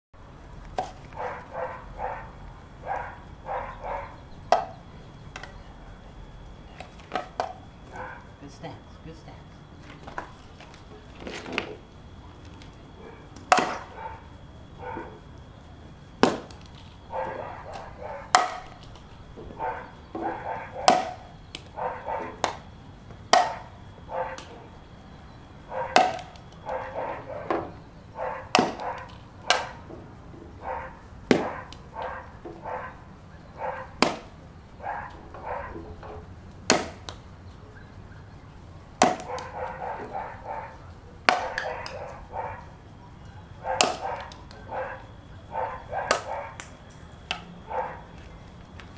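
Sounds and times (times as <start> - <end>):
toy golf club striking balls: 13.4 - 13.9, 17.7 - 19.5, 20.1 - 21.7, 23.3 - 23.7, 25.9 - 26.7.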